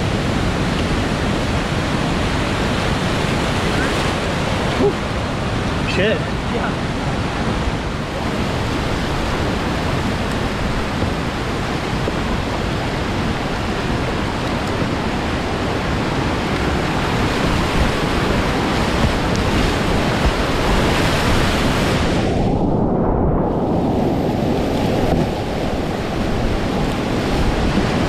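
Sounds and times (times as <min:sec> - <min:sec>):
water splashing against boat: 0:00.0 - 0:22.3, 0:23.8 - 0:28.0
whitewater rapids rushing: 0:00.0 - 0:22.4.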